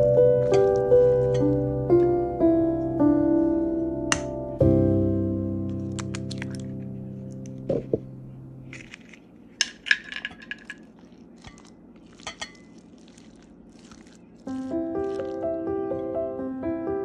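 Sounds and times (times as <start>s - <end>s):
spatula squishing wet meat: 10.5s - 16.1s.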